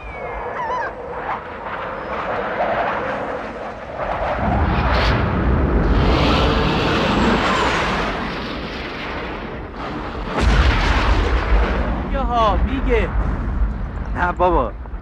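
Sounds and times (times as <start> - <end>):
rumbling battle explosions: 1.0 - 15.0
heavy boom: 4.4 - 15.0.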